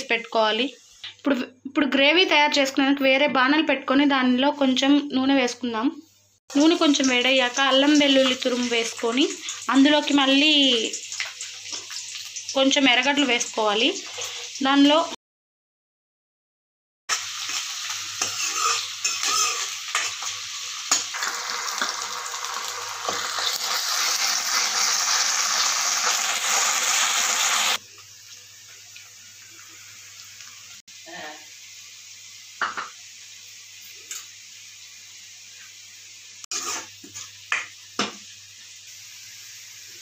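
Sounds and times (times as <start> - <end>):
onions sizzling in hot oil: 0.0 - 5.4, 6.2 - 15.2, 17.1 - 40.0
steel ladle scraping pan: 18.2 - 20.3, 36.5 - 37.3.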